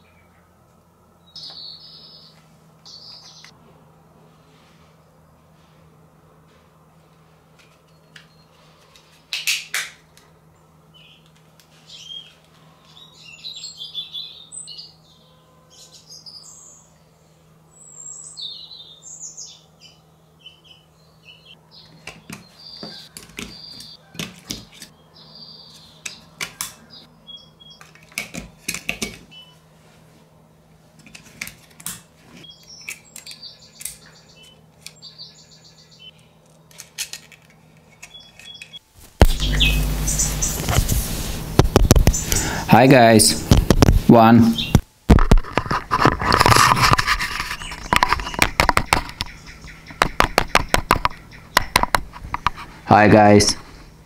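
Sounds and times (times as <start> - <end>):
high chirping sounds: 38.1 - 40.8, 41.8 - 42.9
steady low hum: 38.9 - 45.2
plastic clicks and knocks: 47.8 - 49.3, 49.9 - 52.6.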